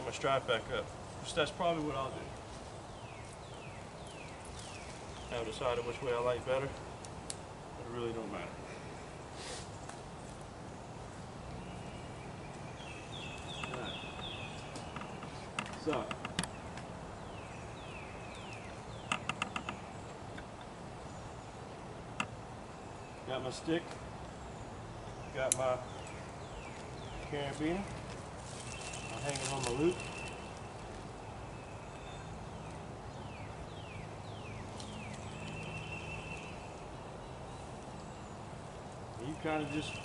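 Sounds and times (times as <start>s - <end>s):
bird chirps: 11.5s - 21.9s, 28.5s - 38.5s, 39.2s - 40.0s.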